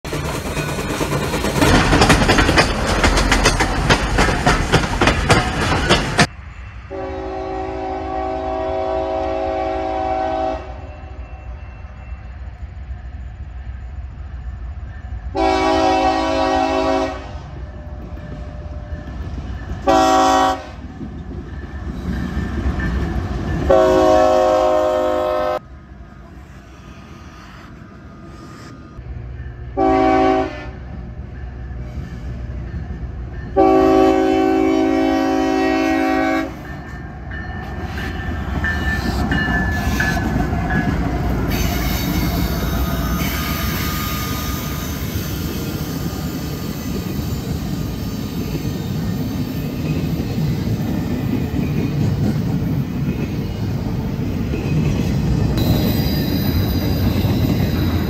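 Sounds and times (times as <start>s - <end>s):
train rumbling: 0.0s - 58.0s
locomotive air horn: 6.9s - 11.2s, 15.3s - 17.7s, 19.8s - 20.9s, 23.7s - 25.6s, 29.8s - 30.9s, 33.6s - 36.7s, 41.5s - 45.2s.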